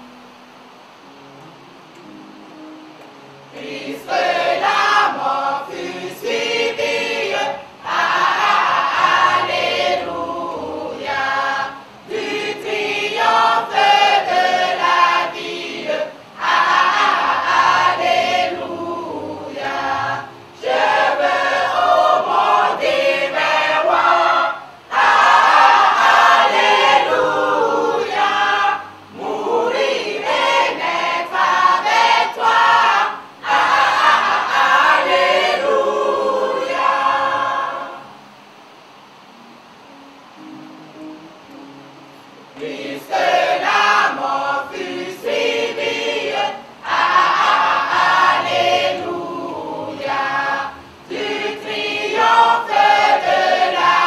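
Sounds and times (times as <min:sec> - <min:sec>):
choir singing: 0:02.0 - 0:38.4, 0:39.9 - 0:54.0.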